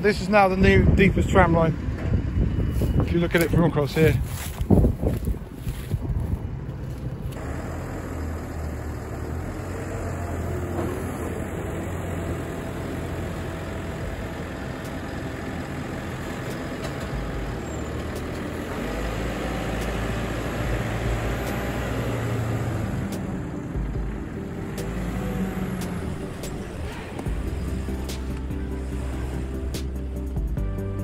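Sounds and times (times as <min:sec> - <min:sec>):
diesel engines droning: 0:00.0 - 0:31.0.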